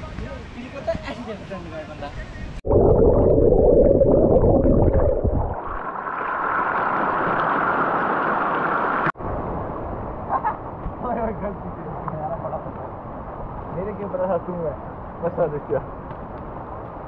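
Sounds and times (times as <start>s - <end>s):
muffled underwater gurgling: 2.6s - 5.8s.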